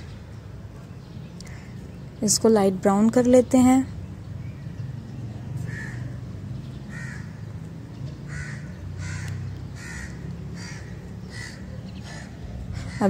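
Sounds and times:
crow cawing: 0:01.4 - 0:01.8, 0:05.7 - 0:06.2, 0:06.9 - 0:07.4, 0:08.3 - 0:13.0.

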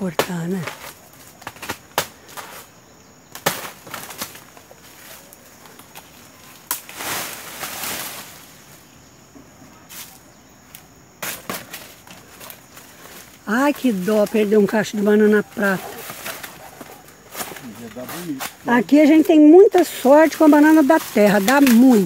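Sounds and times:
dry leaves rustling and crackling: 0:03.4 - 0:08.9, 0:11.2 - 0:22.0.

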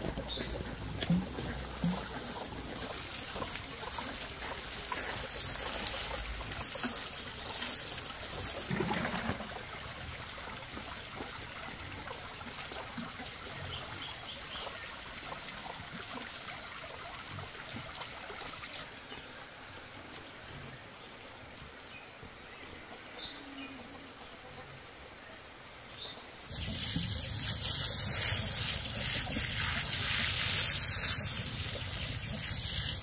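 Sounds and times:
water pouring from watering can: 0:00.0 - 0:13.6, 0:26.5 - 0:33.0.

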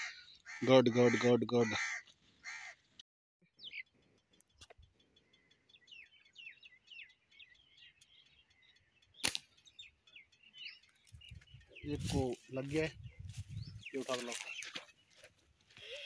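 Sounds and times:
birds chirping: 0:00.0 - 0:16.0
slingshot snap: 0:09.2 - 0:09.5.

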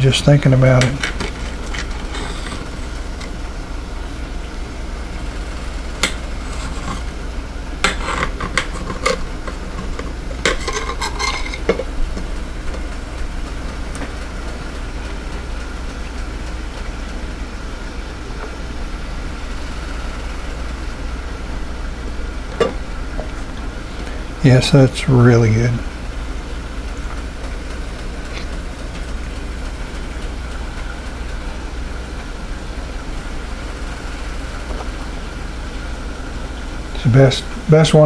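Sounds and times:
bacon sizzling in frying pan: 0:00.9 - 0:24.4, 0:25.8 - 0:37.0
knife scraping on plate: 0:06.4 - 0:07.1, 0:07.8 - 0:09.3, 0:10.4 - 0:11.9.

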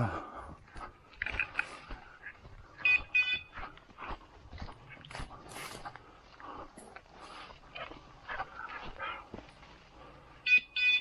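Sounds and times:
rustling of dry brush: 0:05.3 - 0:06.2.

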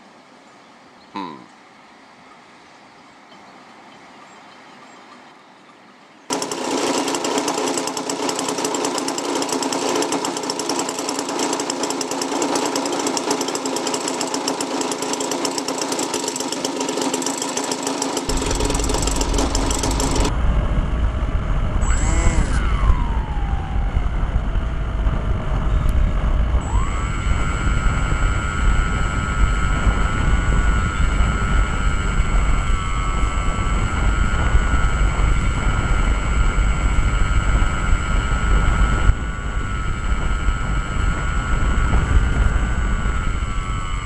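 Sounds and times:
electric model plane motor whine: 0:06.3 - 0:44.0
fast-pulsing mechanical buzz: 0:06.3 - 0:44.0
wind rumble: 0:18.3 - 0:44.0.

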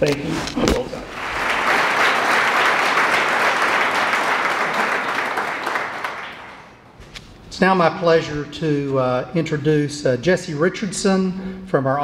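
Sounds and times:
audience applauding: 0:01.1 - 0:06.8.

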